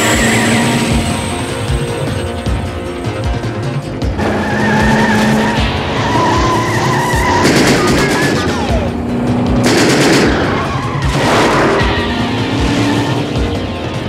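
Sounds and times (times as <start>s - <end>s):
action music: 0.0s - 14.0s
car engines racing: 0.0s - 14.0s
tyres squealing: 0.0s - 14.0s
gunfire burst: 6.2s - 8.8s, 9.5s - 13.1s.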